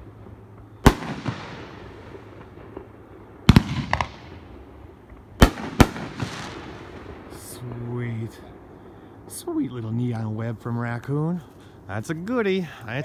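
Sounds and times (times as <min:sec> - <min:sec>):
fireworks bangs echoing: 0:00.0 - 0:09.6
fireworks crackles: 0:00.0 - 0:13.0.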